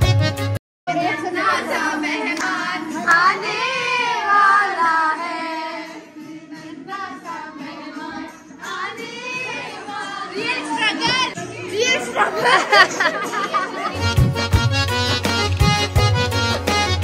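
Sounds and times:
background music: 0.0s - 17.0s
children singing and calling out: 0.9s - 14.0s.

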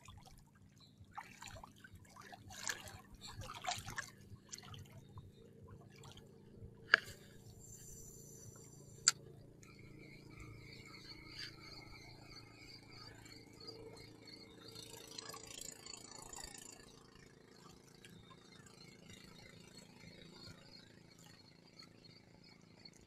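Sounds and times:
fishing reel whirring: 6.9s - 23.0s.

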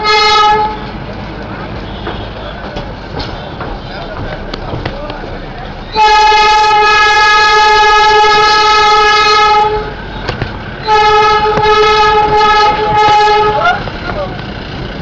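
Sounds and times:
locomotive horn blasts: 0.0s - 1.0s, 1.7s - 3.9s, 5.9s - 10.2s, 10.8s - 13.9s
train wheels clicking on track: 0.0s - 15.0s.

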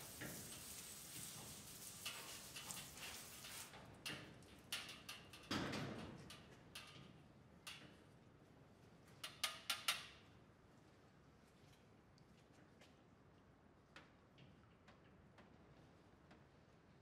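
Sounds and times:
hose spray nozzle hissing: 0.0s - 3.7s.

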